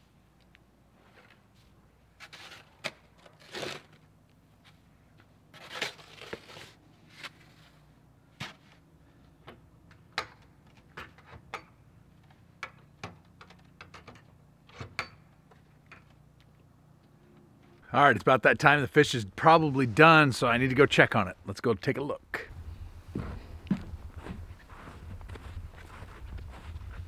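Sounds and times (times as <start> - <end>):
snow shovel scraping snow: 2.2 - 4.0, 5.5 - 7.8.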